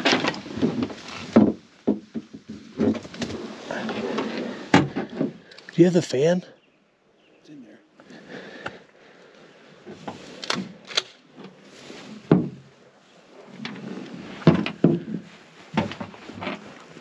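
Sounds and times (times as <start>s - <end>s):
knocks and clunks: 0.0s - 5.6s, 12.3s - 12.7s, 14.4s - 16.6s.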